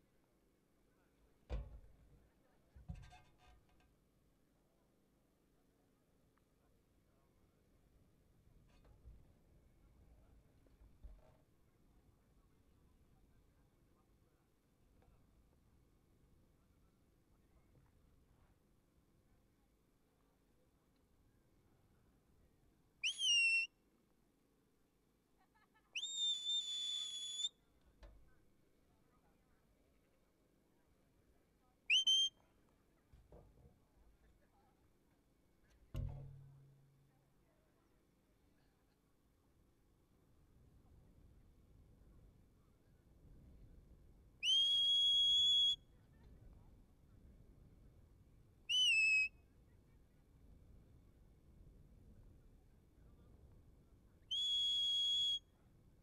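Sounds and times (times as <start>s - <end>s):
faint knock: 1.5s - 2.0s, 2.8s - 3.9s, 35.8s - 37.1s
whistle commands: 23.0s - 23.7s, 26.0s - 27.6s, 31.9s - 32.4s, 44.4s - 45.9s, 48.7s - 49.3s, 54.3s - 55.5s.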